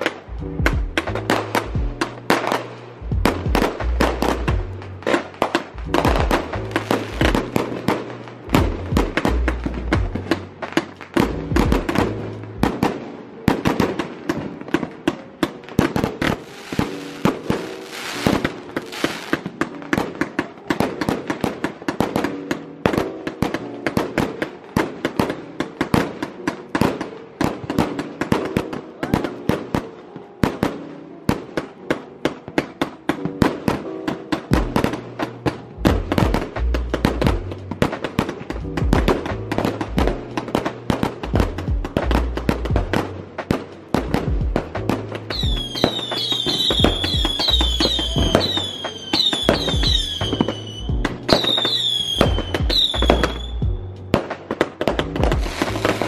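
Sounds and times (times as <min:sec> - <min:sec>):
fireworks popping and crackling: 0:00.0 - 0:56.0
music with bass line: 0:00.3 - 0:02.1, 0:03.0 - 0:04.8, 0:05.8 - 0:07.6, 0:08.5 - 0:10.3, 0:11.2 - 0:12.8, 0:35.8 - 0:37.9, 0:38.5 - 0:40.6, 0:41.2 - 0:43.2, 0:44.0 - 0:45.9, 0:46.7 - 0:48.6, 0:49.4 - 0:51.5, 0:52.2 - 0:54.2, 0:54.9 - 0:56.0.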